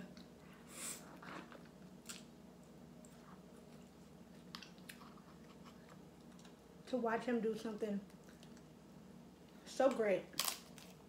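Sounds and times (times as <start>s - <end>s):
soft chewing with clicks and smacks: 3.0s - 6.6s, 8.1s - 8.7s.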